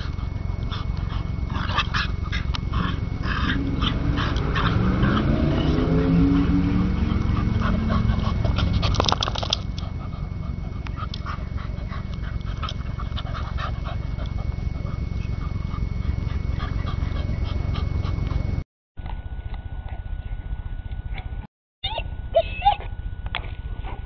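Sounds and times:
dog play-growl: 0.0 - 18.6.

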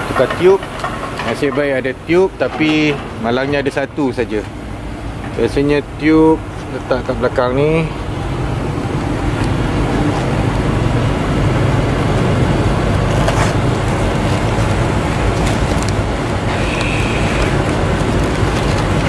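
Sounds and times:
road traffic noise: 0.0 - 19.0
bag clicks and rustles: 12.2 - 19.0.

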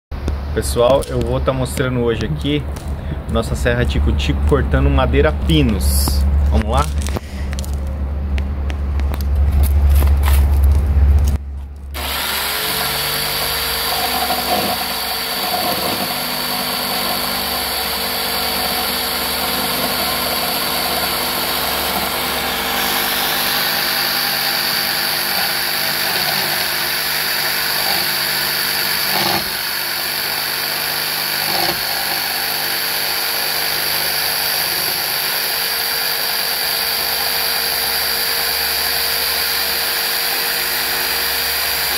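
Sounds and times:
low rumble: 0.1 - 12.0
jigsaw cutting wood: 11.9 - 41.9.

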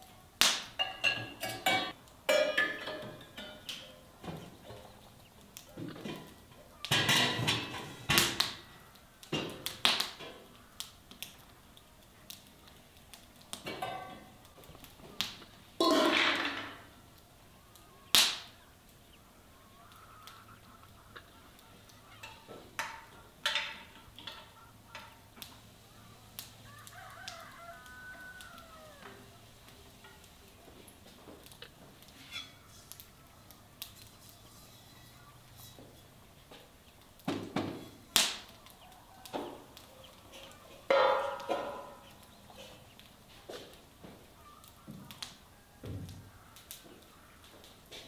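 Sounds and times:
cookware knocking and clinking: 0.8 - 3.9, 6.9 - 8.0.

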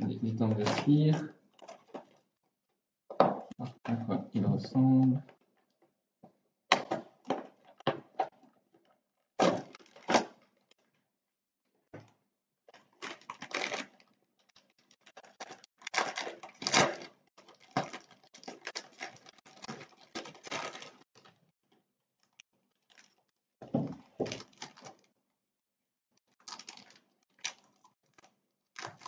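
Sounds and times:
plastic wrap and cardboard crinkling: 0.0 - 2.3, 9.4 - 10.6, 12.7 - 21.4, 22.2 - 25.1, 26.3 - 29.0.

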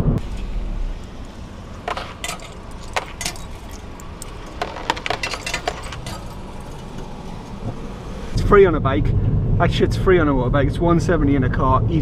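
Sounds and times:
car engine idling: 0.0 - 8.4
coins clinking: 0.3 - 7.0.

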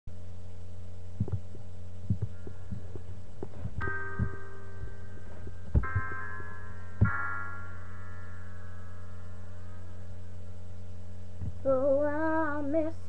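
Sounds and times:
soft low beat thumps: 0.1 - 7.5, 10.7 - 11.9
steady low hum: 0.1 - 13.0
sustained keyboard chords: 1.1 - 12.8.

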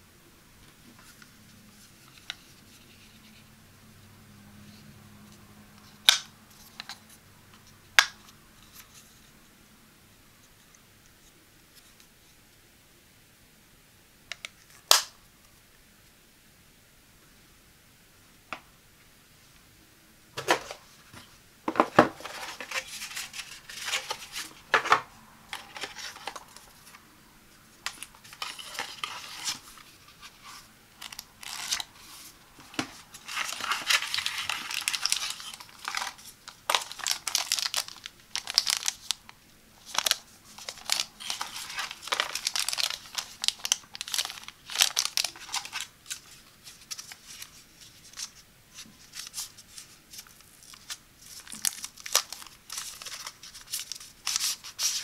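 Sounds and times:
packaging rustling and crinkling: 20.4 - 27.0, 27.8 - 55.0.

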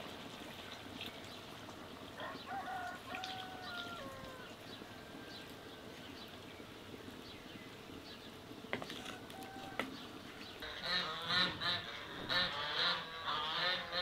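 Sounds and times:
geese honking: 10.6 - 14.0.

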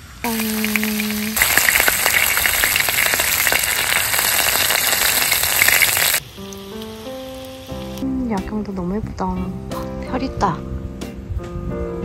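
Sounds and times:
shellfish sizzling: 0.0 - 8.0
soft background music: 6.2 - 12.0.

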